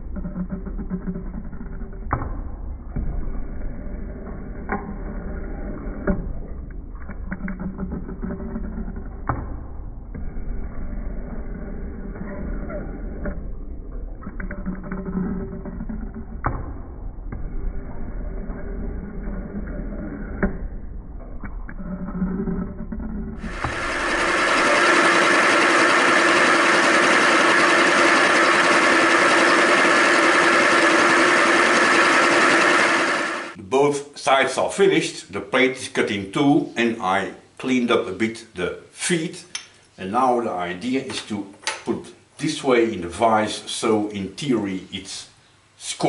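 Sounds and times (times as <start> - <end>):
metal shaper machine hum: 23.4 - 33.6.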